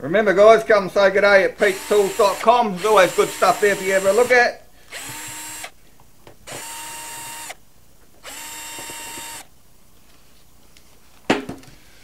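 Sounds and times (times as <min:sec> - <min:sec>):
cordless drill whining: 0:01.6 - 0:05.8, 0:06.4 - 0:07.6, 0:08.2 - 0:09.5
drill knocking on steel bench: 0:04.9 - 0:05.7, 0:08.2 - 0:09.4.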